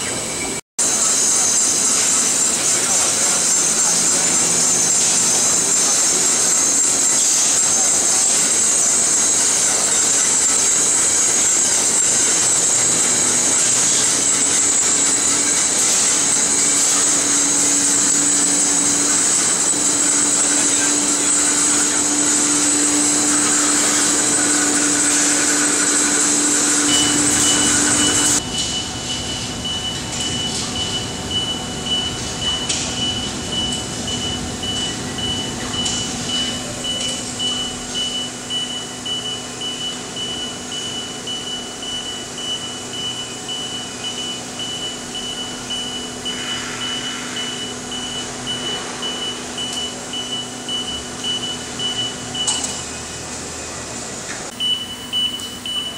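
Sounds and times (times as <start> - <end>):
high pulsing beep: 11.1 - 52.7, 54.5 - 55.9.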